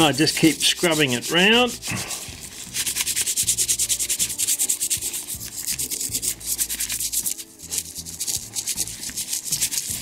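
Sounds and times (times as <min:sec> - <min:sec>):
toothbrush scrubbing metal: 0:00.0 - 0:10.0.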